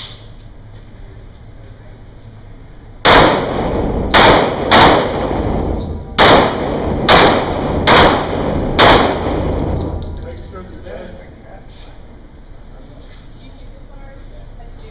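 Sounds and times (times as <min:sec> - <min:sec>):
pistol shots echoing: 0:03.0 - 0:10.2.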